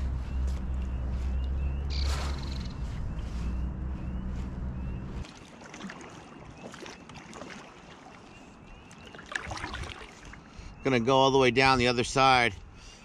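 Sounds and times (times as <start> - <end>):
paddle splashing through water: 5.2 - 10.6.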